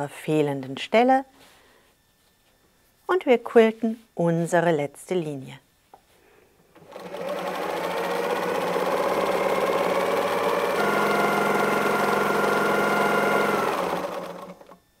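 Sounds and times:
sewing machine stitching: 0:06.8 - 0:14.8.

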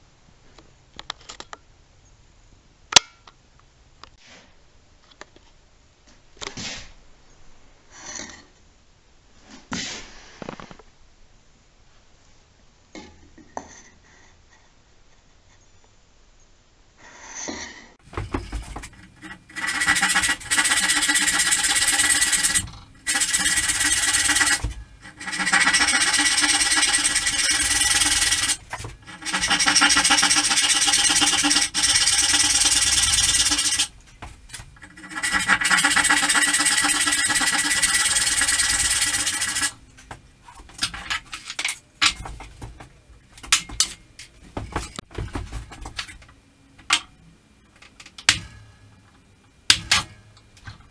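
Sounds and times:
hand saw rasping through wood: 0:18.0 - 0:39.8.

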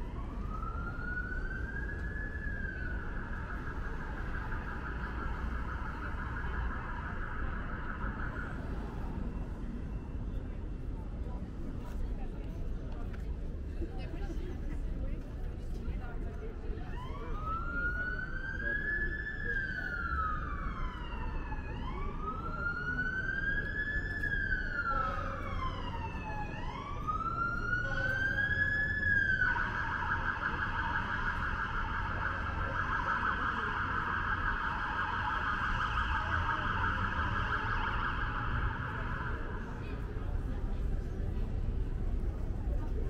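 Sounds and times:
emergency siren wailing and yelping: 0:00.0 - 0:09.7, 0:16.8 - 0:40.4
low street rumble: 0:00.0 - 0:43.0.

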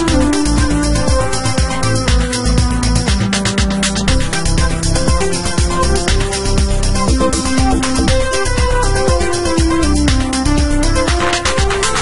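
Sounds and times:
sustained synth notes: 0:07.0 - 0:09.0
low drum beat: 0:07.0 - 0:09.2.

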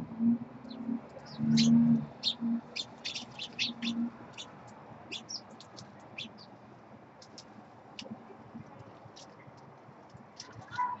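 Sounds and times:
low hum: 0:00.0 - 0:05.4
songbirds chirping: 0:00.0 - 0:11.0.

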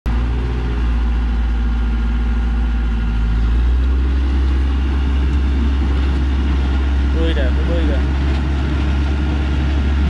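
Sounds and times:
truck engine droning: 0:00.1 - 0:10.0.

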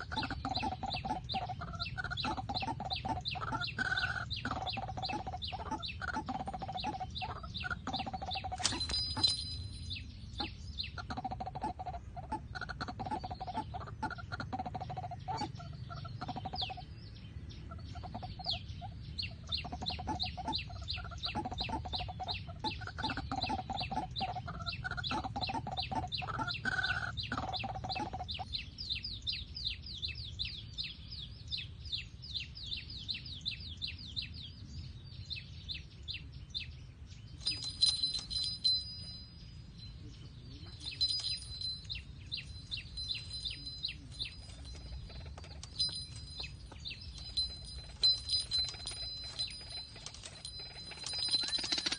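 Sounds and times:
high-pitched chirping: 0:00.0 - 0:12.4, 0:37.4 - 0:51.9
fast high ticking: 0:47.2 - 0:51.9.

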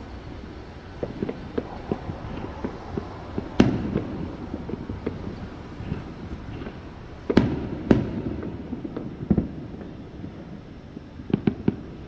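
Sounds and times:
distant fireworks bangs: 0:00.0 - 0:12.0
steady background hiss: 0:00.0 - 0:12.0.

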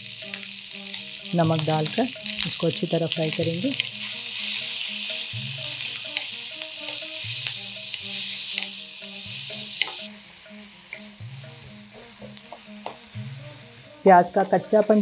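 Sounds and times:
onions sizzling in hot oil: 0:00.0 - 0:15.0
wooden spatula tapping and scraping pan: 0:09.8 - 0:10.2, 0:10.9 - 0:13.6.

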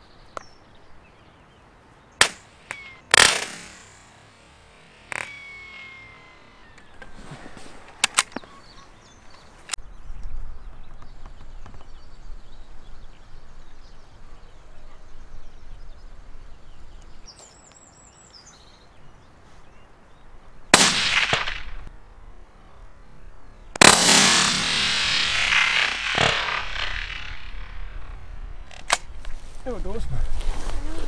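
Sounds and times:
rifle shot: 0:02.2 - 0:04.2, 0:20.7 - 0:21.9, 0:23.8 - 0:29.1
sharp crack: 0:02.2 - 0:07.1, 0:20.7 - 0:21.9, 0:23.7 - 0:29.4
high bird chirps: 0:02.5 - 0:03.1, 0:04.8 - 0:07.2, 0:24.7 - 0:28.8
wind rumbling on microphone: 0:05.2 - 0:17.3, 0:24.4 - 0:31.0.

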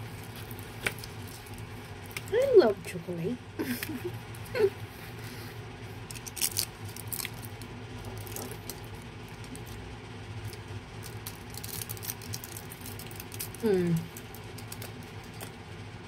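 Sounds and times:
foil wrapper crinkling: 0:00.0 - 0:02.5, 0:06.0 - 0:09.8, 0:10.4 - 0:15.6
low steady hum: 0:00.0 - 0:16.0.

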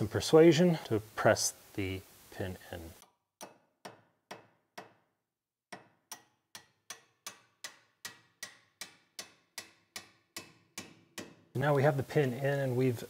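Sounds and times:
hammer striking metal: 0:03.4 - 0:05.1, 0:05.7 - 0:11.7.

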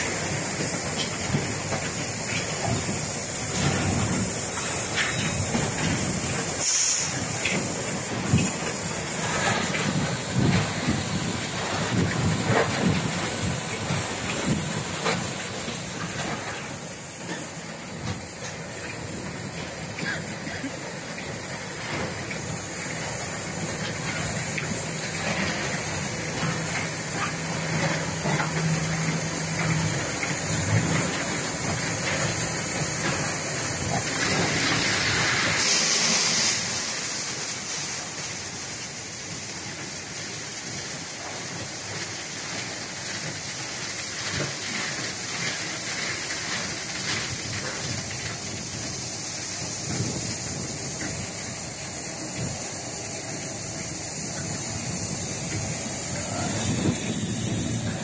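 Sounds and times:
sharp loud hiss: 0:00.0 - 0:58.0.

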